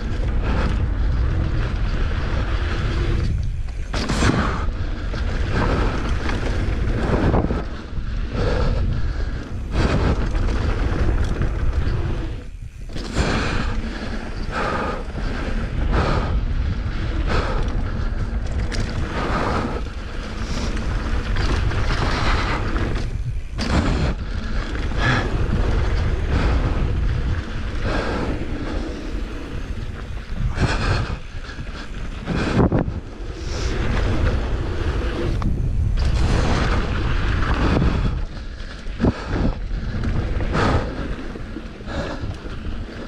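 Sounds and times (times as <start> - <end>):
bike clattering over bumps: 0.0 - 43.0
wind on microphone: 0.0 - 43.0.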